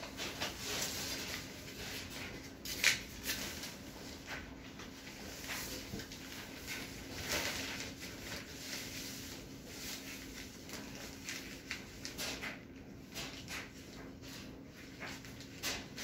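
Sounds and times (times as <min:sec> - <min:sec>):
plastic sheeting crinkling: 0:00.0 - 0:12.6.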